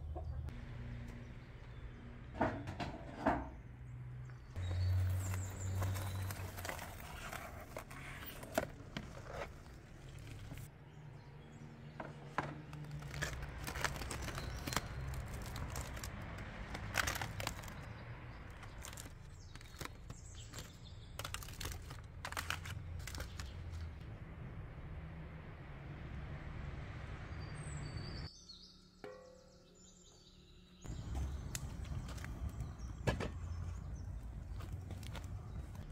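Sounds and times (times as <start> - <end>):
aluminium foil crinkling: 5.0 - 10.7, 12.8 - 17.9, 18.5 - 23.9.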